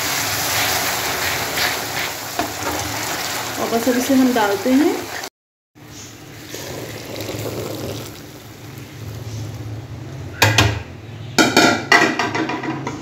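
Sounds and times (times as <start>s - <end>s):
syrup pouring and bubbling: 6.2s - 9.6s.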